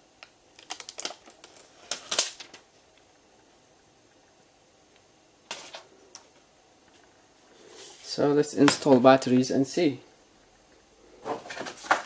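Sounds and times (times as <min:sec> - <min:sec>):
plastic film peeling and crinkling: 0:00.6 - 0:02.6.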